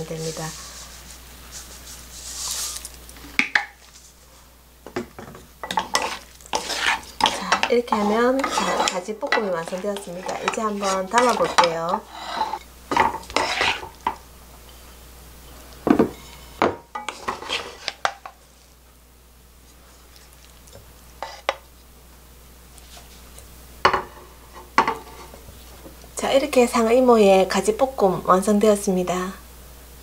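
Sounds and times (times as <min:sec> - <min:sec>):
wooden utensils scraping a wok: 0:00.0 - 0:03.0, 0:05.6 - 0:14.2, 0:16.2 - 0:18.4, 0:21.2 - 0:21.6
utensils clacking on ceramic plate: 0:05.6 - 0:13.9.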